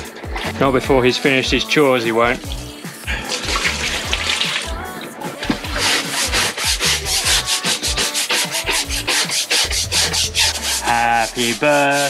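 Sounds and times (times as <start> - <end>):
floor scrubbing by hand: 2.3 - 12.0.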